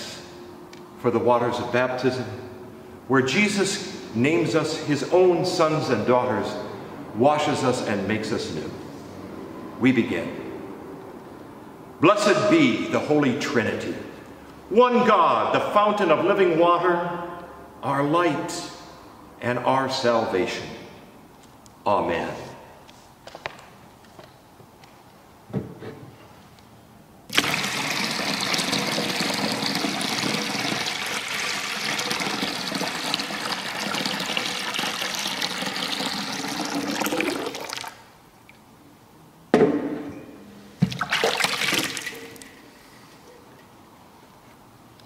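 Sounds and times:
water pouring into a metal basin: 0:27.3 - 0:38.0, 0:41.0 - 0:42.6.

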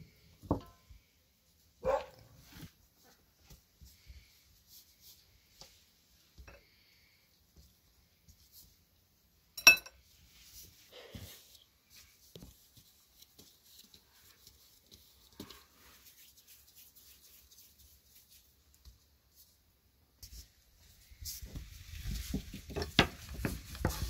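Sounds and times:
sharp ringing clink: 0:09.6 - 0:09.9
dough thudding and patting: 0:21.4 - 0:24.0.

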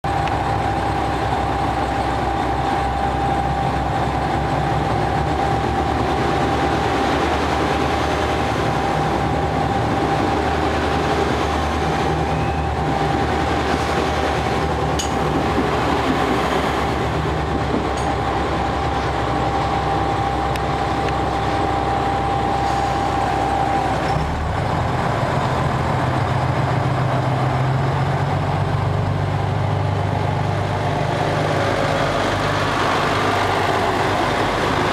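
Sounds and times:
diesel train engine idling: 0:00.0 - 0:34.9
steady high tone: 0:18.0 - 0:24.3.

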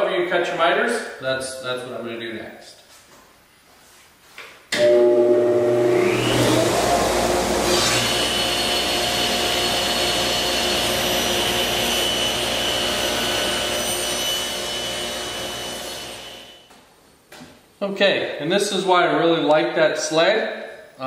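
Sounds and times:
table saw whirring and whining: 0:04.8 - 0:16.6.

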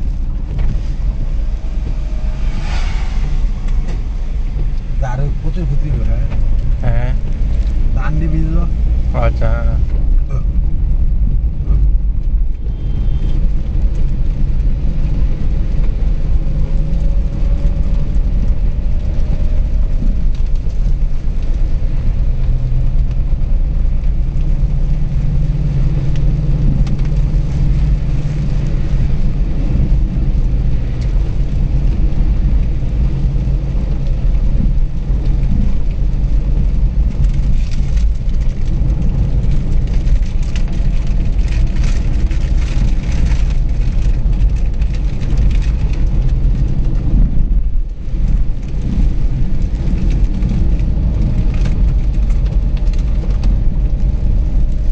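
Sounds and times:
car engine and tyres rumbling: 0:00.0 - 0:54.9
rain and road spray hiss: 0:00.0 - 0:54.9.

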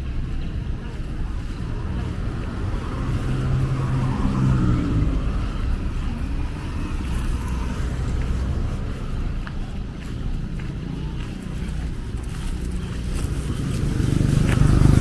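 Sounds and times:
traffic hum: 0:00.0 - 0:15.0
car driving past: 0:02.2 - 0:09.1.

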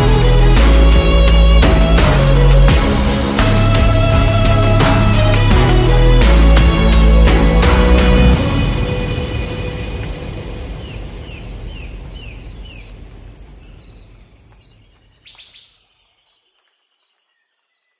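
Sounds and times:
low rushing noise: 0:00.0 - 0:15.1
birds chirping: 0:03.6 - 0:17.2.

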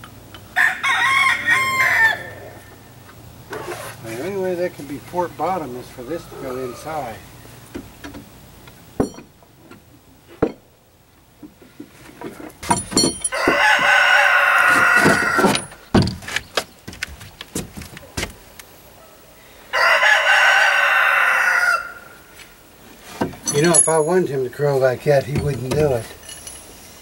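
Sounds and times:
rooster crowing: 0:00.5 - 0:02.9, 0:05.4 - 0:07.4, 0:13.3 - 0:15.9, 0:19.1 - 0:22.4.

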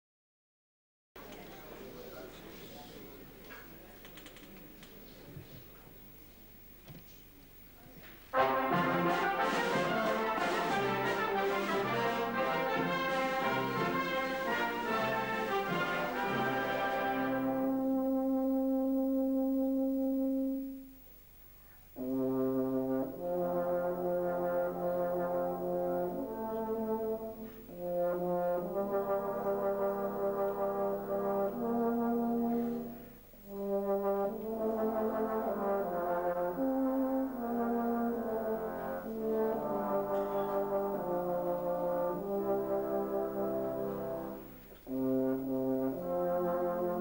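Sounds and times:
brass band chords: 0:08.3 - 0:21.0, 0:21.9 - 0:47.0
euphonium solo: 0:08.3 - 0:21.0, 0:22.0 - 0:47.0.

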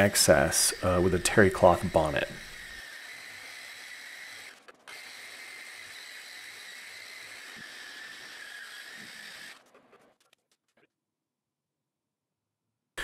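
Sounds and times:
orbital sander whining: 0:00.0 - 0:09.6.

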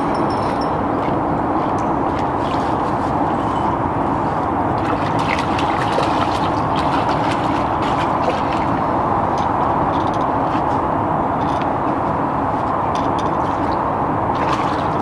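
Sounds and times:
steady background noise: 0:00.0 - 0:15.0
water splashing and dripping: 0:04.7 - 0:10.7, 0:13.2 - 0:15.0.

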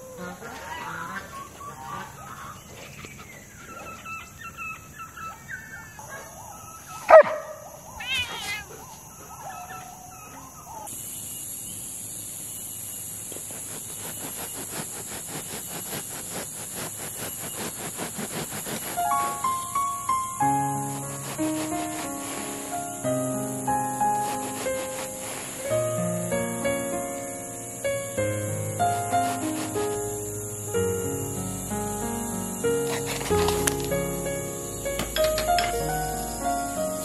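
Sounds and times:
dog calls: 0:00.0 - 0:10.9
cat calls: 0:07.1 - 0:10.9
steady high hiss: 0:10.8 - 0:37.0
quick regular rasping: 0:13.4 - 0:26.0, 0:28.8 - 0:30.2, 0:31.6 - 0:37.0.

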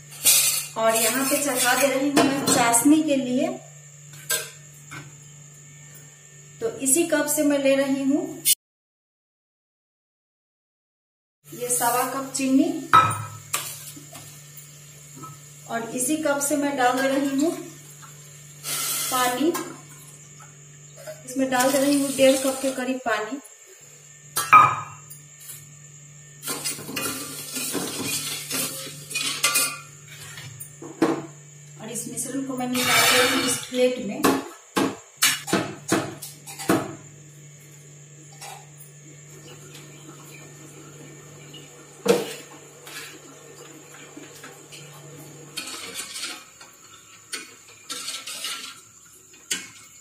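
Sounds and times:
ladle scraping metal pot: 0:47.3 - 0:48.8.

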